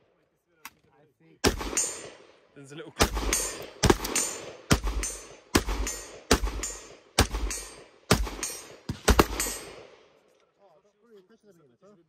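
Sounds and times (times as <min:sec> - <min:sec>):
gunshots with ringing echo: 0:01.4 - 0:10.2.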